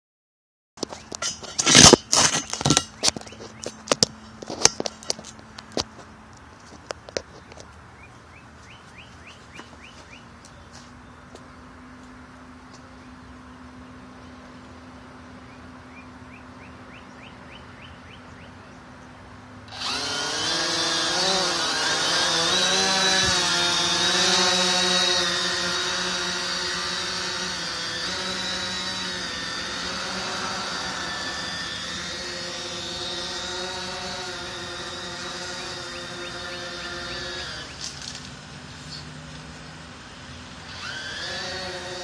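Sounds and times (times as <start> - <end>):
quadcopter motors whining: 19.6 - 42.0.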